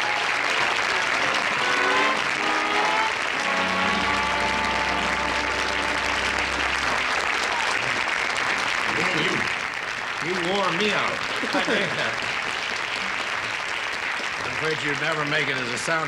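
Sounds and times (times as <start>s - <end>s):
audience applauding: 0.0s - 16.0s
music with held chord: 0.9s - 7.2s.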